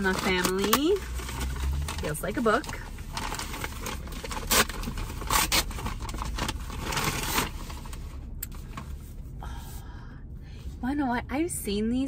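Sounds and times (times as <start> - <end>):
paper rustling and crinkling: 0.0 - 8.9
low steady rumble: 0.0 - 12.0.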